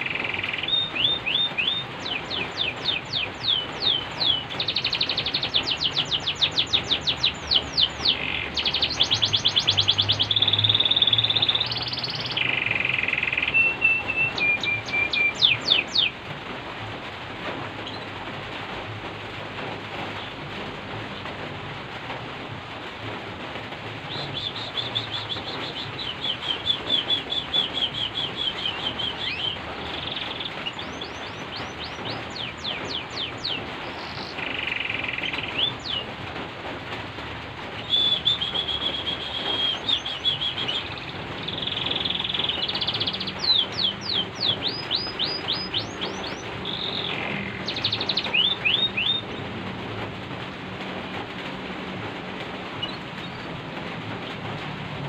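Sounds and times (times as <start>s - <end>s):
canary singing: 0.0s - 16.2s, 24.1s - 36.2s, 37.8s - 49.7s, 52.7s - 53.6s
falling rain hiss: 0.0s - 55.0s.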